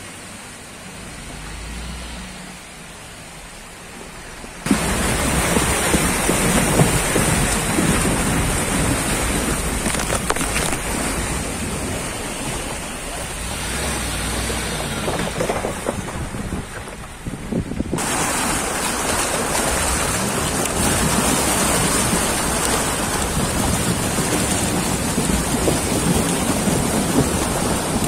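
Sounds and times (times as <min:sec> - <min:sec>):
vehicle engine and road rumble: 0:00.0 - 0:28.0
wind buffeting microphone: 0:04.7 - 0:18.2.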